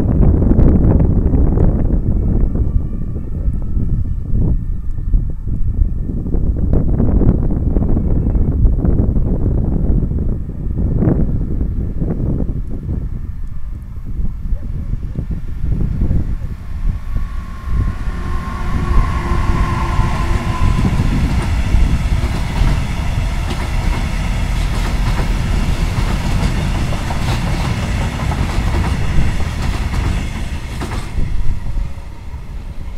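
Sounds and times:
train wheels rumbling on rails: 0:15.2 - 0:32.9
locomotive tone: 0:15.5 - 0:32.9.

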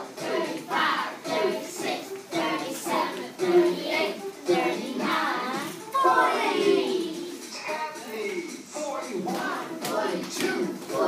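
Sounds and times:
children singing: 0:00.0 - 0:08.2, 0:08.9 - 0:11.0.

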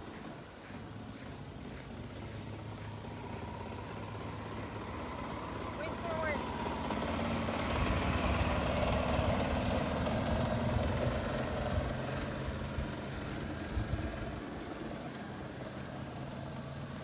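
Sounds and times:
golf cart motor droning: 0:00.0 - 0:17.0.

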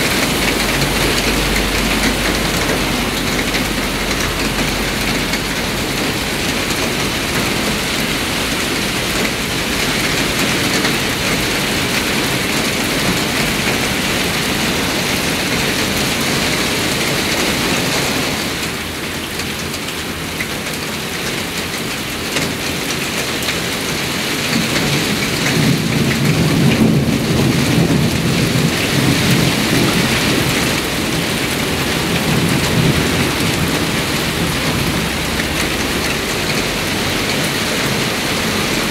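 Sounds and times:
thunder rumbling: 0:00.0 - 0:17.0, 0:25.1 - 0:38.9
heavy rain falling: 0:00.0 - 0:38.9.

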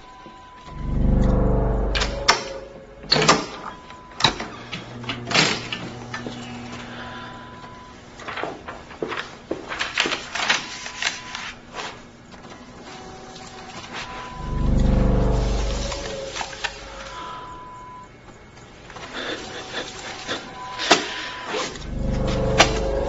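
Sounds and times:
faint steady hum: 0:00.0 - 0:09.2, 0:11.2 - 0:23.0
door opening: 0:00.6 - 0:06.9
paper rustling: 0:08.0 - 0:12.4.

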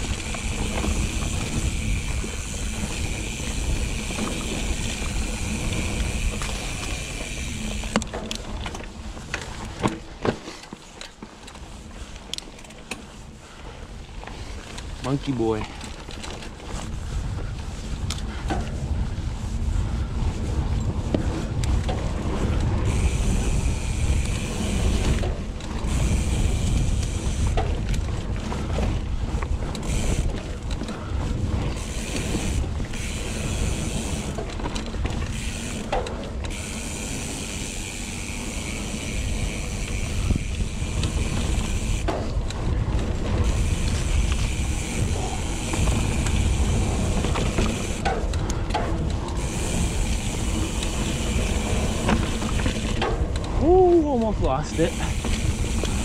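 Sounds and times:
bicycle hub ratcheting buzz: 0:00.0 - 0:08.4, 0:21.6 - 0:53.6, 0:54.6 - 0:56.0
wind on microphone: 0:00.0 - 0:09.3, 0:16.5 - 0:56.0.

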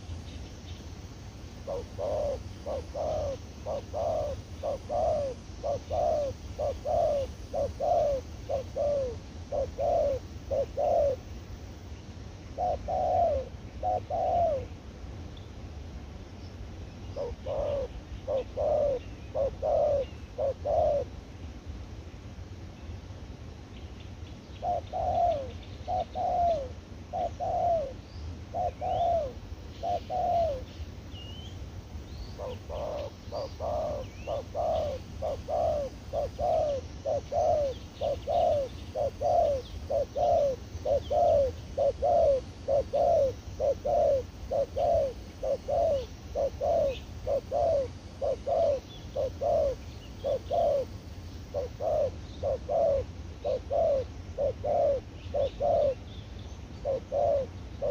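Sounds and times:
small birds chirping: 0:00.0 - 0:11.4, 0:23.8 - 0:57.9
dove cooing: 0:01.5 - 0:11.3, 0:12.5 - 0:14.7, 0:17.1 - 0:21.2, 0:24.6 - 0:30.8, 0:32.1 - 0:56.1, 0:56.7 - 0:57.9.

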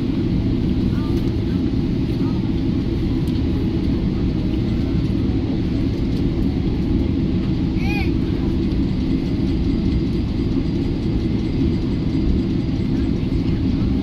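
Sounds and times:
aircraft cabin rumble: 0:00.0 - 0:14.0.

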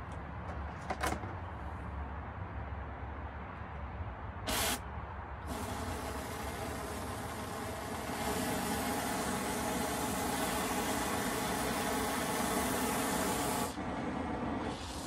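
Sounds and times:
torch flame hissing: 0:05.5 - 0:13.8.

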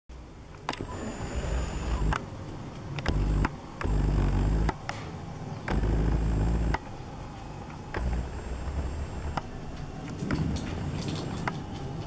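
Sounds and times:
camcorder zoom clicks and whine: 0:00.7 - 0:02.3, 0:03.0 - 0:05.0, 0:05.7 - 0:06.9, 0:07.9 - 0:09.5.

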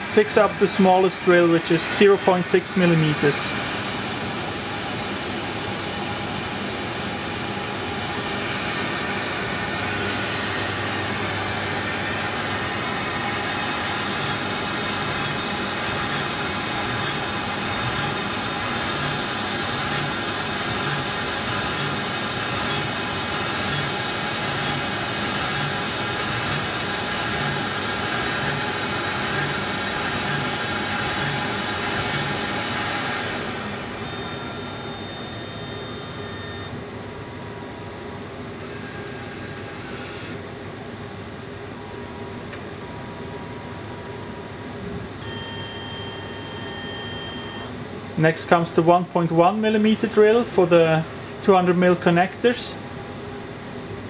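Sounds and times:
milling machine drilling holes: 0:00.0 - 0:06.6, 0:07.3 - 0:36.8.

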